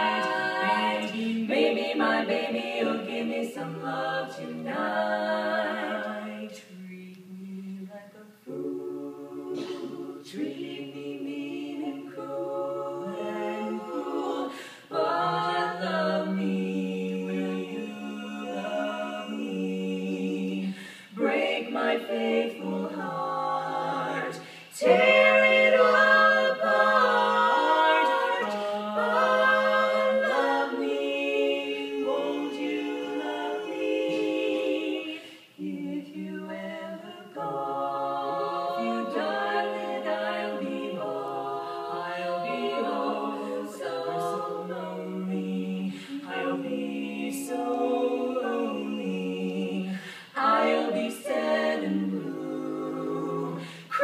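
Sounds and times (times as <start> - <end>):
women singing a cappella harmony: 0.0 - 54.0.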